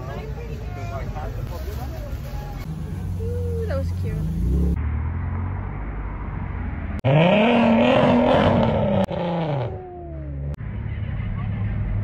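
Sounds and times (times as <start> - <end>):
car engine revving: 2.6 - 10.6.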